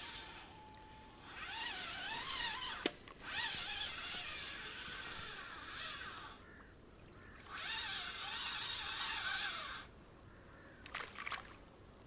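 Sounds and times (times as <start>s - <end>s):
fishing reel whirring: 0.0s - 6.4s, 7.4s - 10.0s.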